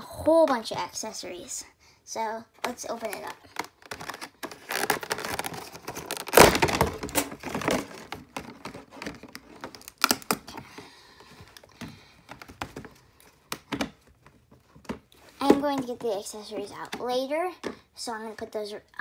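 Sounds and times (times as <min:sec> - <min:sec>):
plastic packaging crackling: 0:02.6 - 0:10.8.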